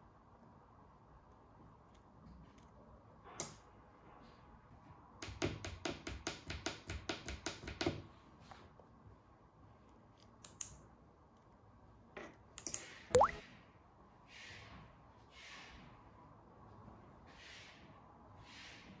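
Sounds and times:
remote button clicks: 13.1 - 13.4.

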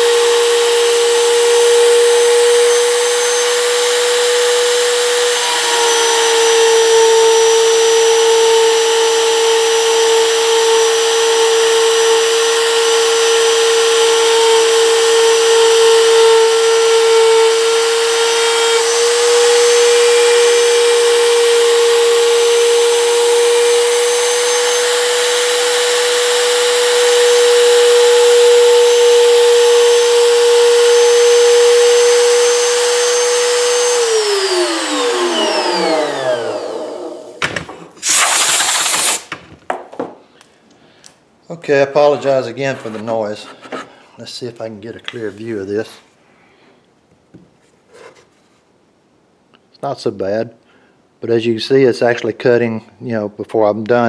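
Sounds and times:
router cutting wood whining: 0.0 - 39.3.

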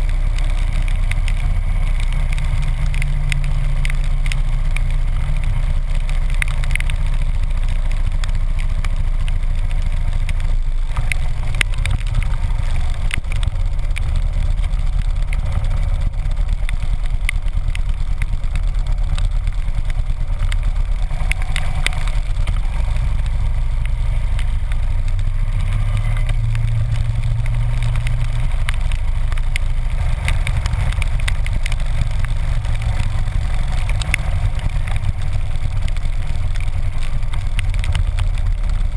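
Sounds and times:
motorcycle engine running: 0.0 - 38.9
raindrops ticking on camera: 0.0 - 38.9
wind noise: 0.0 - 38.9.

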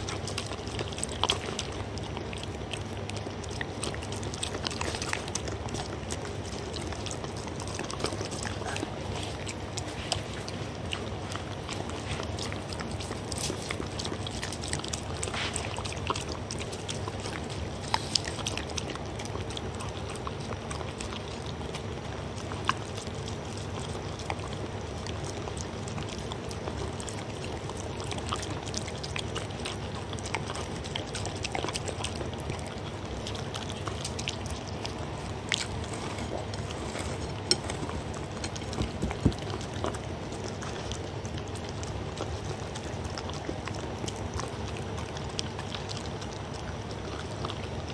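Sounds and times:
dog lapping and chewing: 0.0 - 47.9
teeth clicking against plate: 0.0 - 47.9.

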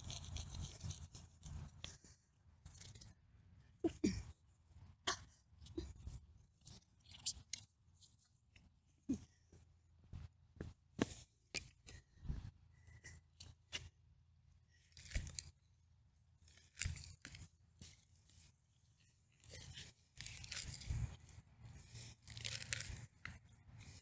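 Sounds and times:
loppers cutting through roots: 16.4 - 18.1, 19.4 - 24.0.

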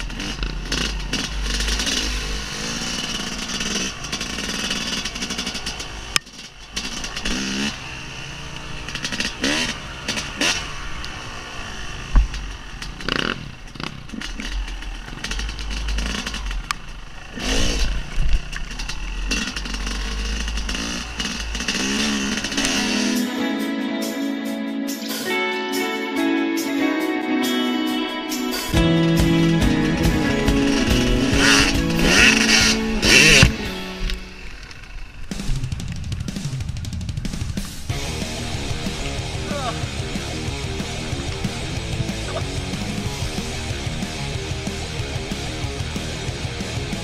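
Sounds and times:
dirt bike engine revving: 0.0 - 23.4, 28.3 - 47.0
music: 22.5 - 34.4, 35.3 - 47.0.

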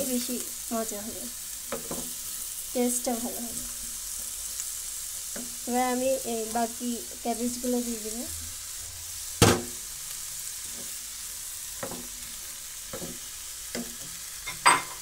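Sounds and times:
vegetables sizzling in a frying pan: 0.0 - 15.0
sharp knock: 9.4 - 9.8.

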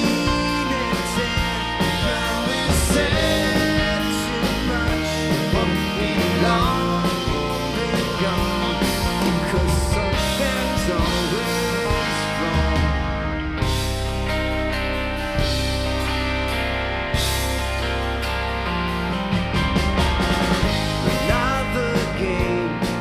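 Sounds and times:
lead vocal: 0.0 - 14.0, 20.7 - 23.0
bass: 0.0 - 23.0
electric guitar: 0.0 - 23.0
keyboard: 0.0 - 23.0.

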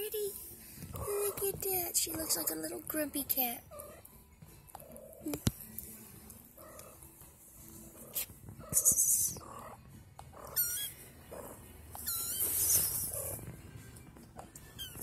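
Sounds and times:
kitten mewing: 8.0 - 13.4.

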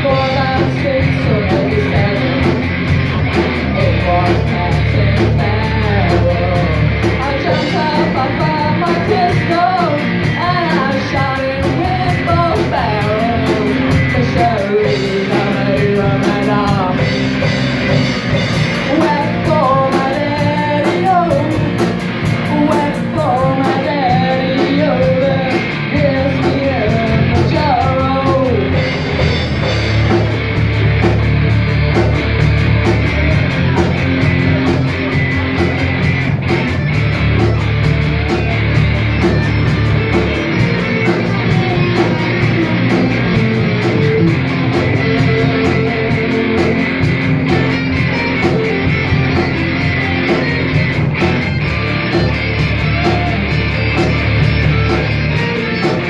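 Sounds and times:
woman singing: 0.0 - 2.7, 3.6 - 17.5, 18.8 - 29.0, 40.8 - 47.8
rock band playing: 0.0 - 56.0.

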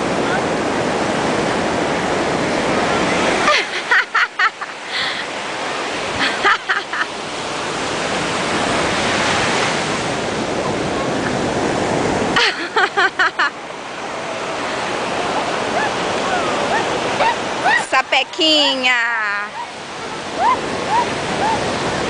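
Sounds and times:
ocean surf on beach: 0.0 - 22.0.

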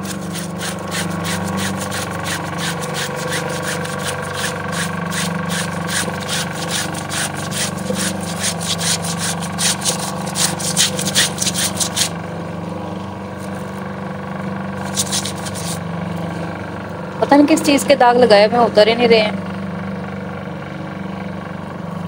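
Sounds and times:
soap rubbed on cloth: 0.0 - 12.2, 14.8 - 15.8
spin dryer humming: 0.0 - 14.0, 14.7 - 16.4.

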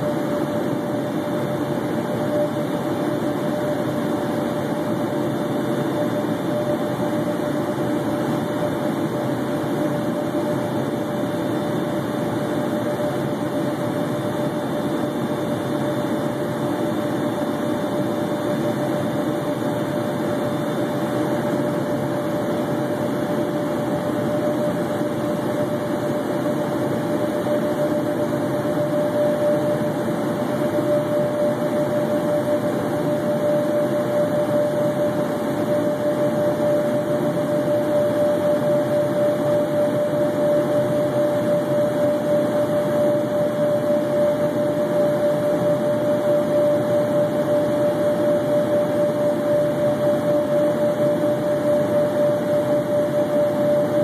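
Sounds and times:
jet cabin airflow and engines: 0.0 - 54.0.

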